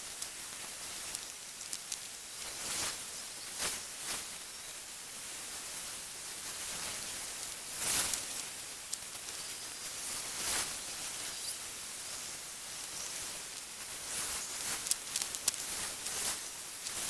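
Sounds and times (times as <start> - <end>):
steady hissing noise: 0.0 - 17.0.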